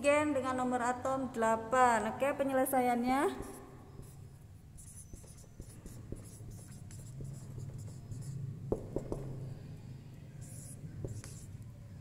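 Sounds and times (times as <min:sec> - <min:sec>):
steady low hum: 0:00.0 - 0:12.0
marker scratching on whiteboard: 0:03.3 - 0:12.0
marker tapping: 0:04.8 - 0:09.6, 0:10.4 - 0:11.6.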